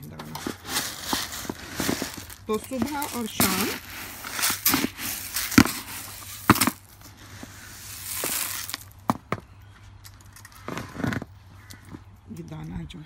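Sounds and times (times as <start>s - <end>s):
birdseed rustling: 0.0s - 9.2s
metal scoop scraping in bucket: 0.1s - 8.8s.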